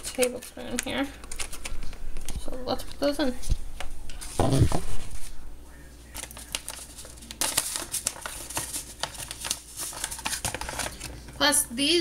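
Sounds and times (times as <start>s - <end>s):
plastic bag crinkling: 6.1s - 11.3s.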